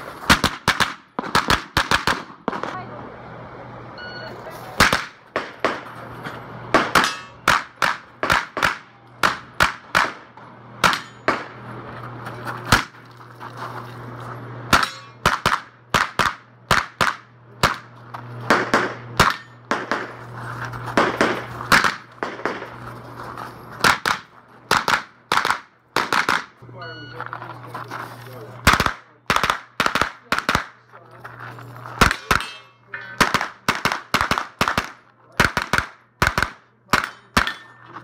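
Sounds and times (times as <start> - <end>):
rapid gunshots: 0.3 - 2.7, 6.7 - 11.5, 14.7 - 17.9, 18.5 - 20.2, 21.0 - 22.8, 23.8 - 26.6, 28.6 - 30.8, 33.2 - 37.5
bullets ringing on steel targets: 6.8 - 8.0, 10.8 - 11.5, 14.7 - 15.6, 18.6 - 20.0, 32.0 - 33.7, 37.0 - 38.0.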